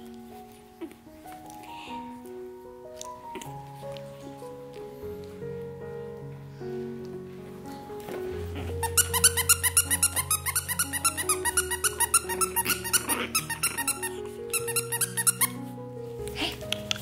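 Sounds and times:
background music: 0.0s - 17.0s
dog toy squeaking: 8.7s - 15.6s.

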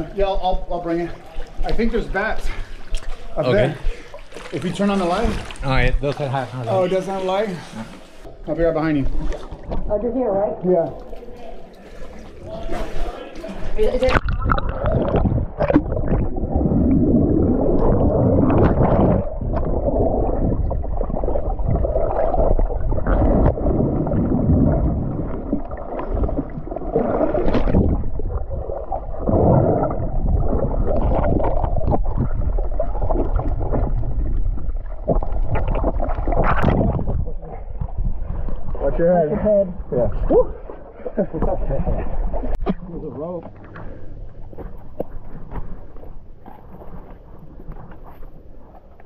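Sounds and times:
water splash: 1.3s - 6.4s, 10.9s - 38.8s
muffled underwater gurgling: 14.0s - 39.0s.

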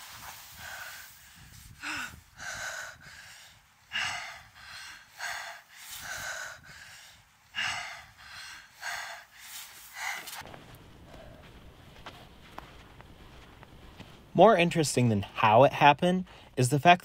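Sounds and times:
boy gasping breaths: 0.3s - 10.4s.

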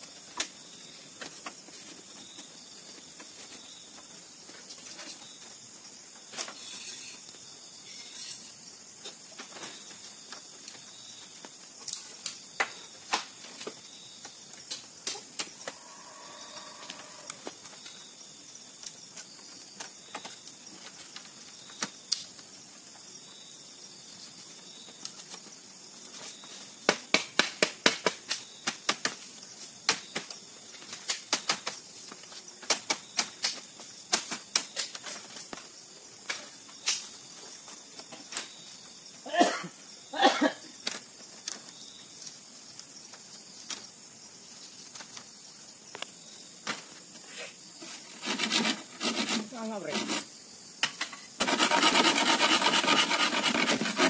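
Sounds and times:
forest insects droning: 0.0s - 54.0s
bamboo strips clacking: 51.0s - 54.0s.

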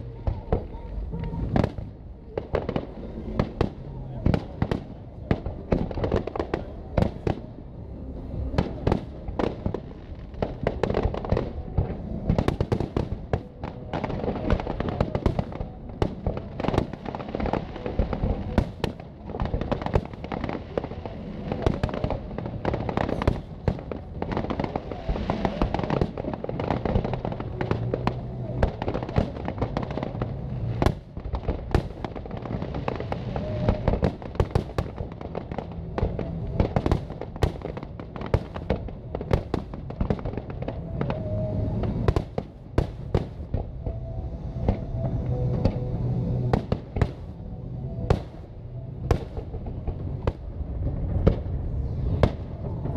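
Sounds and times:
fireworks bursting and crackling: 0.0s - 52.9s.

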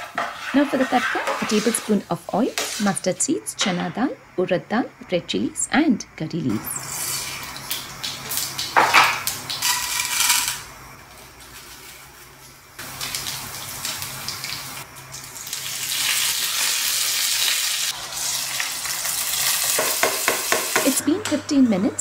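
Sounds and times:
spices sizzling in hot oil: 0.0s - 3.3s, 6.8s - 10.8s, 11.4s - 21.0s
spoon stirring pan: 0.0s - 3.9s
popping spices: 6.7s - 10.7s, 12.8s - 21.8s.

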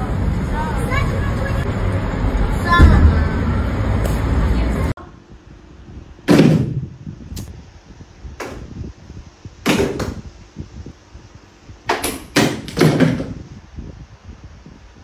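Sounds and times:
sharp knocks and thumps: 6.3s - 6.9s, 11.9s - 13.4s.

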